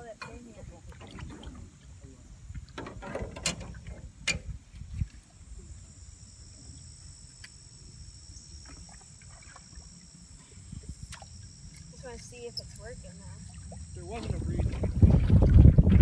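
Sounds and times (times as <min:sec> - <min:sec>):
insects trilling: 0:00.0 - 0:15.7
low wind rumble: 0:10.4 - 0:16.0.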